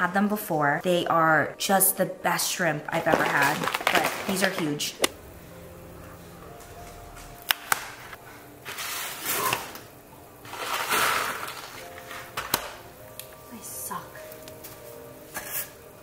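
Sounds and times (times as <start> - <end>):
pasta packaging rustling: 2.9 - 5.0, 10.4 - 12.6.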